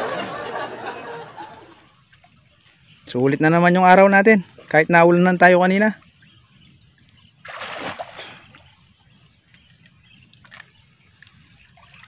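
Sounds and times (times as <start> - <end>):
water splash: 7.4 - 8.7.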